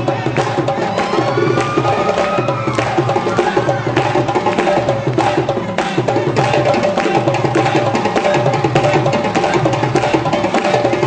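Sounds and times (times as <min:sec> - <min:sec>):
fast hand drumming: 0:00.0 - 0:11.0.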